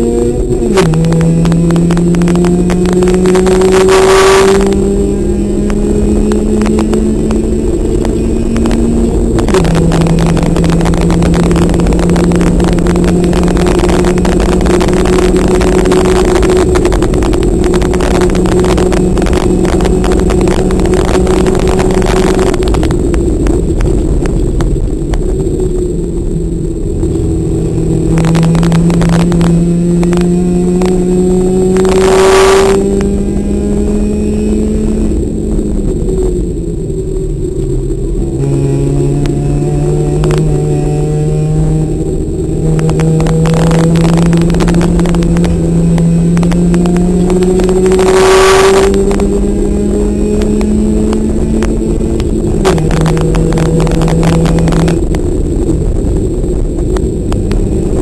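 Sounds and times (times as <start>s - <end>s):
race car engine: 0.0s - 58.0s
road and wind noise: 0.0s - 58.0s.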